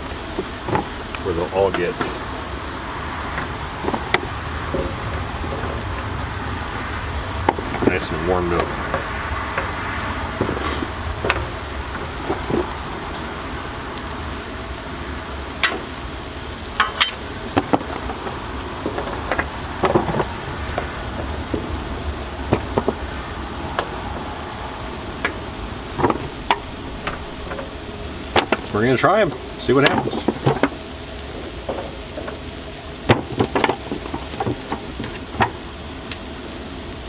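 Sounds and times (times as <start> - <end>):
sweet potatoes sizzling on griddle: 0.0 - 37.0
slices tapping on griddle: 15.6 - 15.9, 22.5 - 23.0, 28.3 - 28.7, 33.0 - 35.6.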